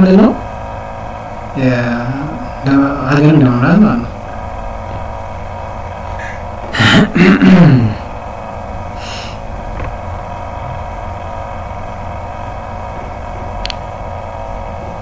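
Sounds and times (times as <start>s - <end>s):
electrical hum and hiss: 0.0s - 15.0s
light click: 13.6s - 13.8s.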